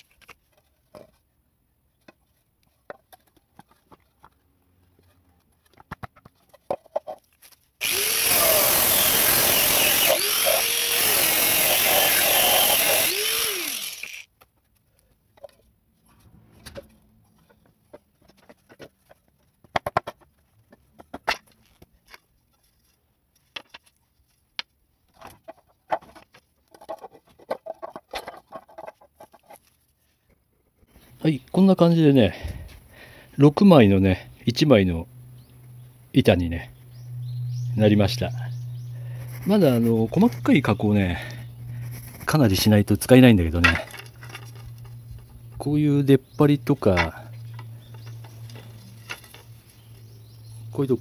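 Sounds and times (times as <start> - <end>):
power tool cutting siding: 7.8 - 14.3
siding pieces knocking: 17.9 - 21.6.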